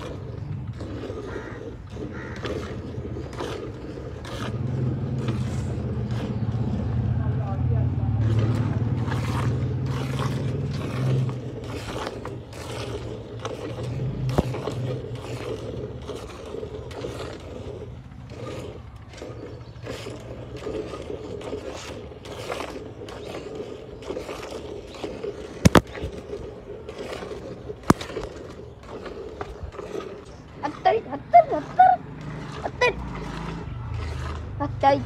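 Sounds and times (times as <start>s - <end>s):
milk squirting into steel pail: 0.0s - 7.4s, 8.1s - 35.0s.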